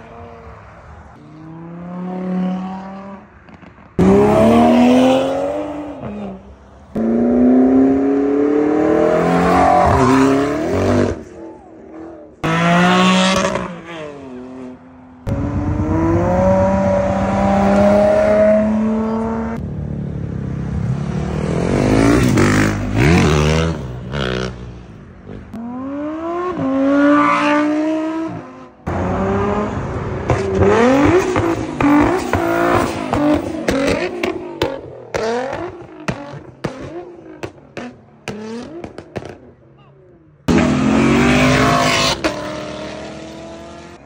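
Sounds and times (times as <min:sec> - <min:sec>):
sports car engines revving: 0:00.0 - 0:44.0.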